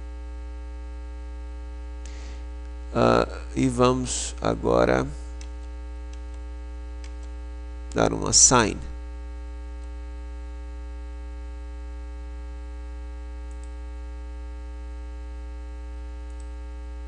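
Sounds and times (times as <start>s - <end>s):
electrical mains hum: 0.0s - 17.0s
faint small tick: 13.5s - 13.8s, 16.3s - 16.6s.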